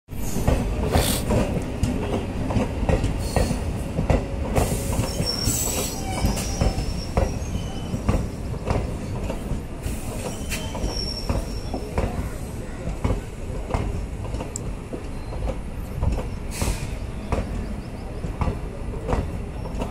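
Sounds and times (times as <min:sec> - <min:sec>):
train wheels rumbling on rails: 0:00.1 - 0:19.9
high wheel squeals: 0:04.7 - 0:08.4, 0:09.9 - 0:11.9.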